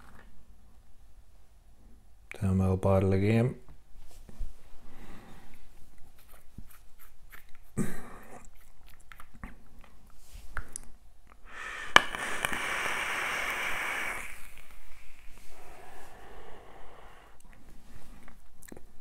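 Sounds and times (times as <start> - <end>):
hissing crackling vape draw: 11.5 - 17.4.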